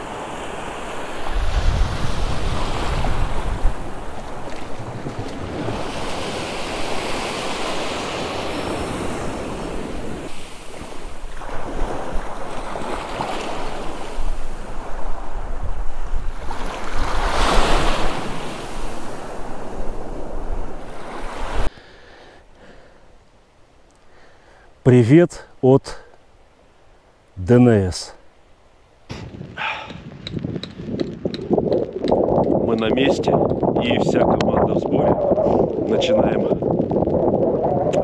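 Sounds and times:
wind buffeting microphone: 0.0 - 21.7, 29.1 - 38.0
waves breaking: 0.0 - 23.2.

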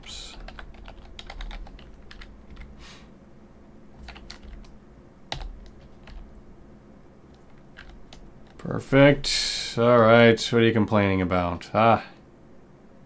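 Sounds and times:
typing on computer keyboard: 0.1 - 2.7, 4.0 - 4.7, 5.3 - 6.3, 7.4 - 8.6.

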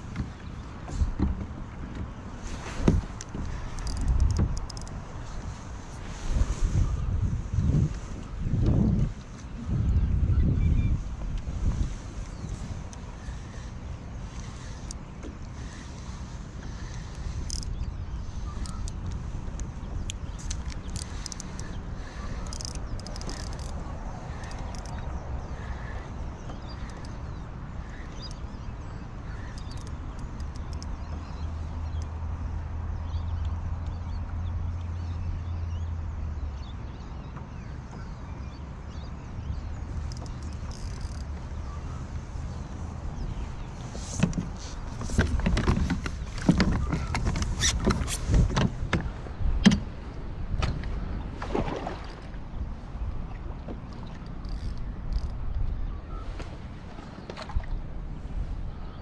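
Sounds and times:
wind rumble on microphone: 0.0 - 59.0
gear knocking against plastic kayak: 0.1 - 5.0, 22.4 - 25.1, 44.1 - 52.3
light clicks and taps: 18.6 - 21.8.

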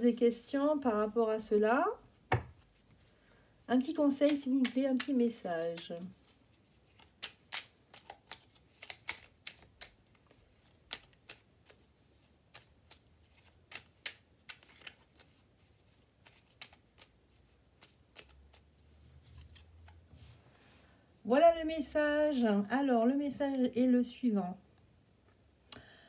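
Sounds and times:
cards being shuffled: 3.8 - 20.2.

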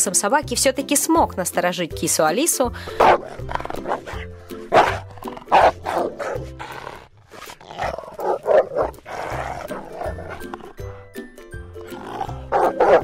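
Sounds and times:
recorded dog barking from speaker: 2.9 - 6.5, 7.8 - 10.6, 12.3 - 13.0.

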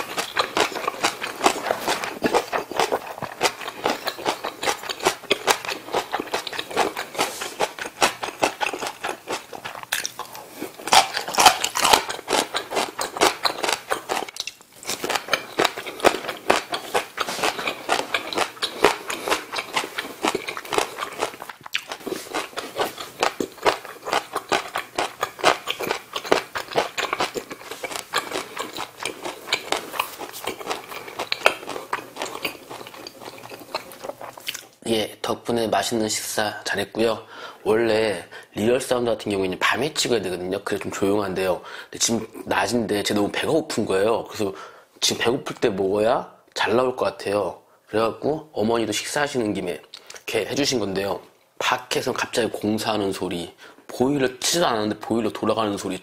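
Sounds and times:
person chewing with crunching: 0.0 - 34.8
wet mouth clicks: 24.3 - 34.8, 49.9 - 50.2.

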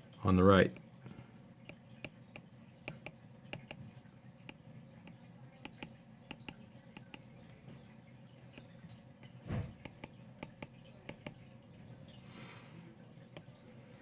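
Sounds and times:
stylus tapping on tablet: 1.6 - 7.4, 8.5 - 11.4.

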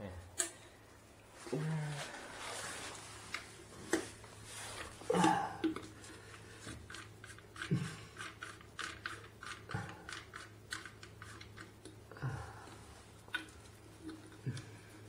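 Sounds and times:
small metal clicks and scrapes: 6.6 - 11.9.

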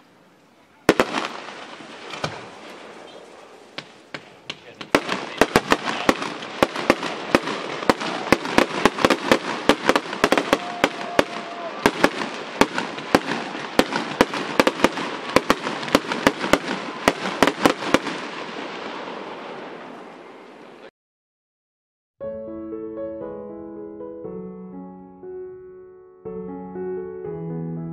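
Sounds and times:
fireworks bangs: 0.7 - 20.9
crackle of sparks: 0.9 - 19.8.

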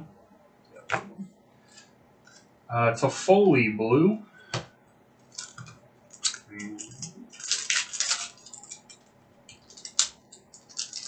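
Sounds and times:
card pack wrapper crinkling and tearing: 5.3 - 11.0.

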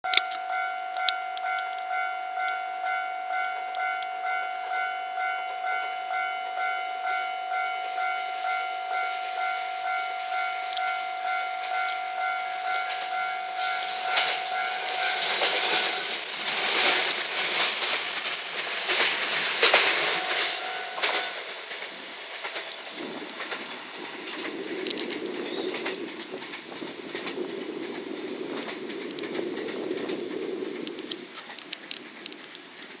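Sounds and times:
level-crossing warning bell: 0.0 - 21.6
train rumble: 0.1 - 33.0
train wheels clattering: 10.8 - 33.0.

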